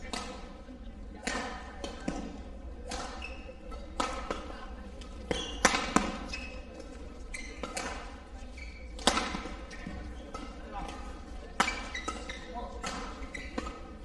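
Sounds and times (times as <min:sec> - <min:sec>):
racket striking shuttlecock: 0:00.0 - 0:00.5, 0:01.2 - 0:06.6, 0:07.6 - 0:14.0
shoes squeaking on court floor: 0:02.9 - 0:04.3, 0:05.0 - 0:14.0.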